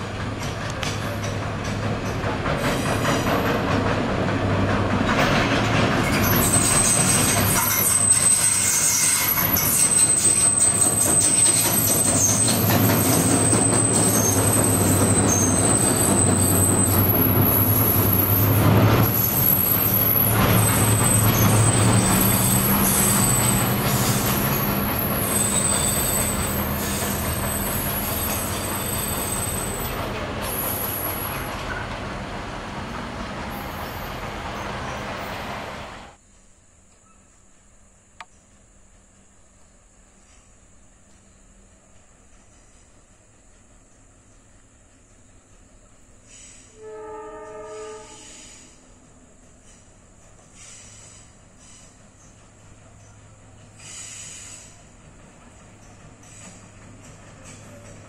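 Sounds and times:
diesel locomotive engine hum: 0.0s - 36.8s, 37.5s - 58.0s
high-pitched squealing: 6.2s - 31.6s.

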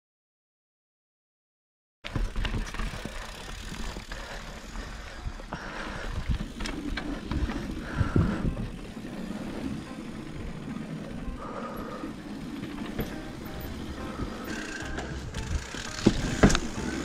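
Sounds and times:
bike rattling and knocking: 2.0s - 5.1s, 6.0s - 17.0s
bike tyres rumbling: 2.0s - 17.0s
wind on camera: 6.1s - 8.9s.

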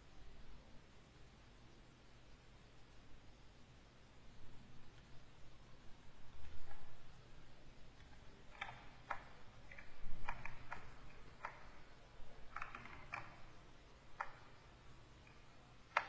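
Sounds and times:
faint low hum: 0.0s - 16.0s
computer clicks and taps: 7.9s - 16.0s.

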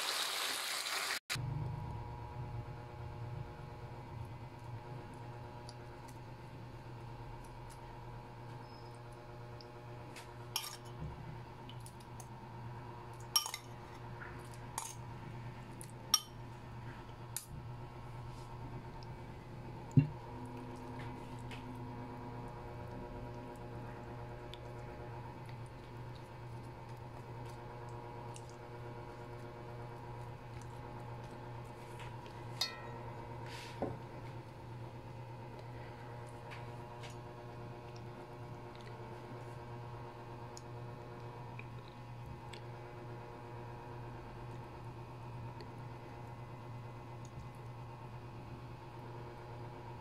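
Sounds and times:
steady low hum: 1.4s - 50.0s
metal spoon clinking on ceramic: 13.4s - 13.7s, 32.6s - 33.0s.

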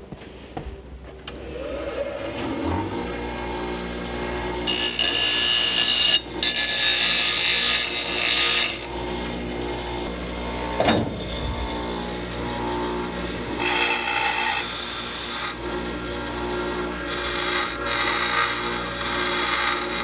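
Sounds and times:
bench grinder motor running: 1.4s - 20.0s
steel grinding on wheel: 10.6s - 20.0s.

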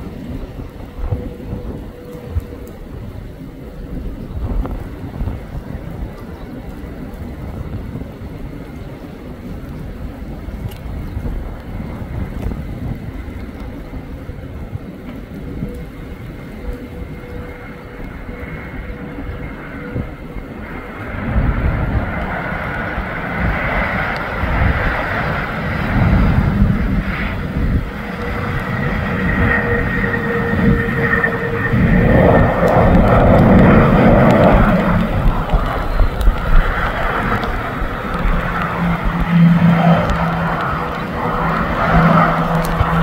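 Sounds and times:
jet engines roaring: 0.0s - 43.0s
thin high whine: 26.3s - 43.0s.

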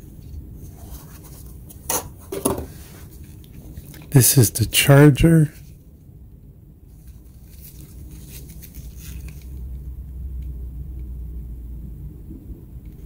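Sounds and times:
low rumble: 5.6s - 13.0s
plastic charger and cord rustling: 6.9s - 9.8s.

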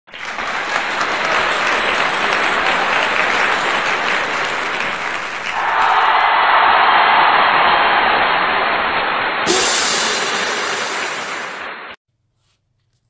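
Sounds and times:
crowd clapping: 0.1s - 12.0s
steady hiss: 9.5s - 12.0s.

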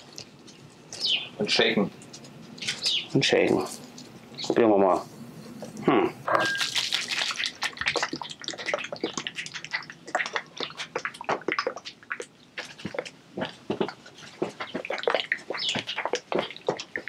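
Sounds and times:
sauce sloshing in a shaker: 6.4s - 13.2s.

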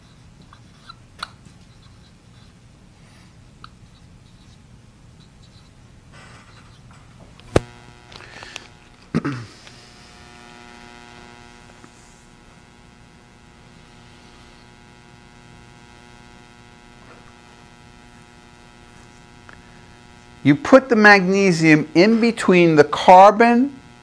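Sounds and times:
faint electrical hum: 0.0s - 24.0s
marker squeaking on a whiteboard: 5.2s - 5.8s, 6.4s - 6.9s.

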